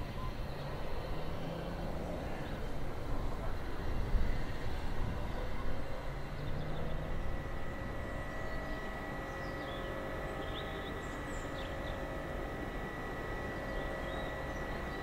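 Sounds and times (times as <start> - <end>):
faint steady high tone: 7.0 - 15.0.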